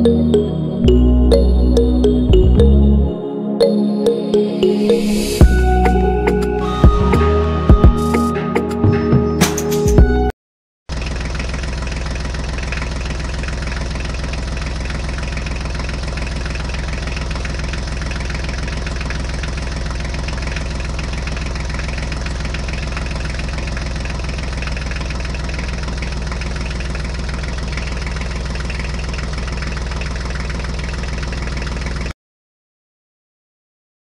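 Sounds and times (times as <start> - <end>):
tractor engine idling: 10.9 - 32.1.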